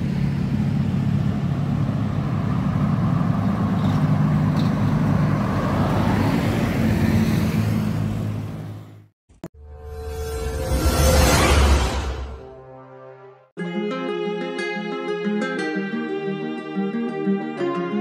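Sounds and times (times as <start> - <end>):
cars and motorcycles passing: 0.0 - 9.1.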